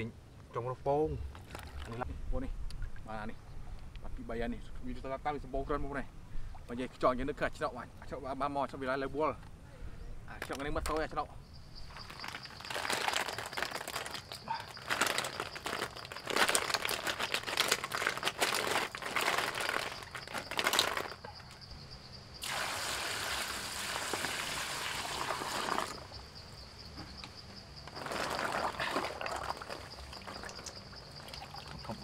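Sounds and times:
water pouring: 22.4s - 26.1s, 27.9s - 32.0s.

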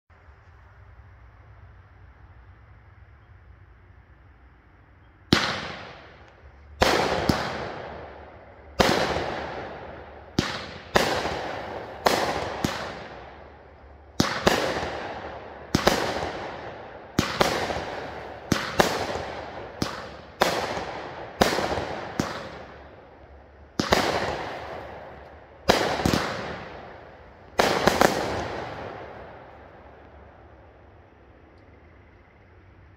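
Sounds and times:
firework bangs: 5.3s - 30.8s.

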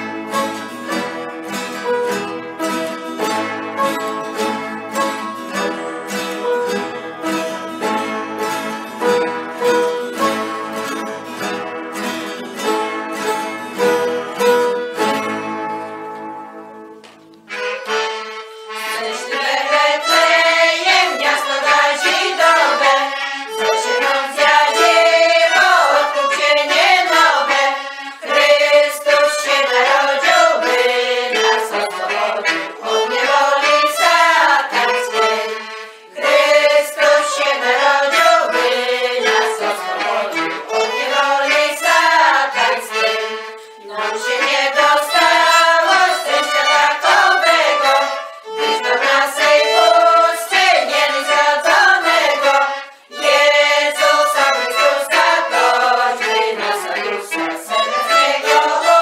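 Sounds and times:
accordion: 0.0s - 59.0s
fiddle: 0.0s - 59.0s
women's group singing a carol: 18.7s - 59.0s.

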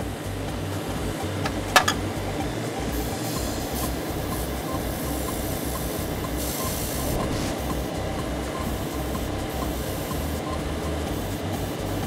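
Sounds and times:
air compressor running: 0.0s - 12.0s
airbrush air hissing: 0.0s - 12.0s
extractor fan running: 0.0s - 12.0s.

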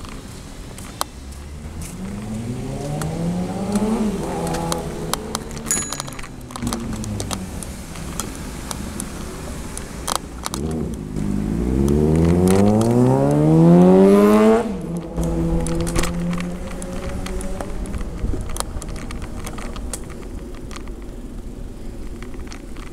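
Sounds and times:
engine revving: 1.2s - 20.6s
small clicks and rattles: 3.7s - 9.2s, 9.8s - 11.0s, 11.8s - 13.4s, 14.9s - 22.9s.

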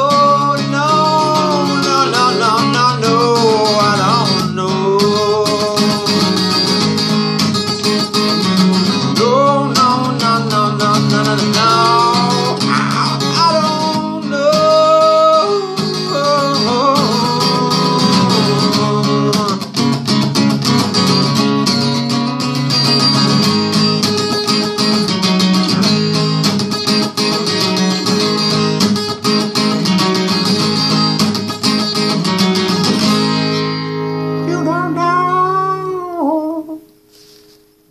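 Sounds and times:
man singing wordless phrases: 0.0s - 6.7s, 9.0s - 19.8s, 34.4s - 36.9s
acoustic guitar strumming: 0.0s - 37.9s.

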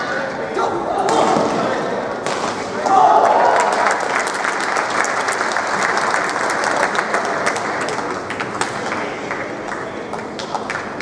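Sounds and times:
spectators clapping: 3.0s - 11.0s.

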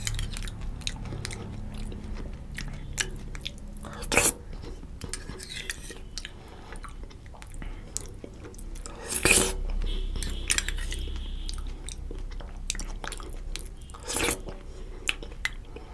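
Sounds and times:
person chewing softly: 0.0s - 15.9s
wet mouth noises: 0.0s - 15.9s.

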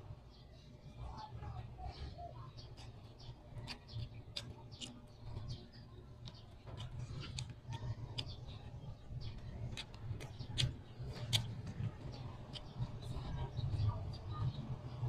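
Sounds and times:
chewing mouth sounds: 2.6s - 14.2s.

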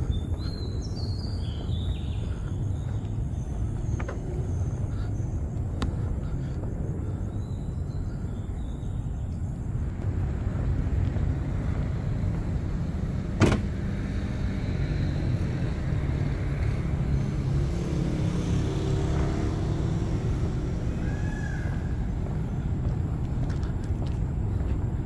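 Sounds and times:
cars passing: 0.0s - 25.0s.

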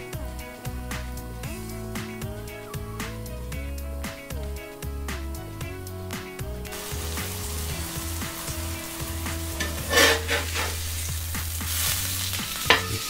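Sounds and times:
meat sizzling in oil: 6.7s - 13.0s
spatula scraping: 7.2s - 12.0s.

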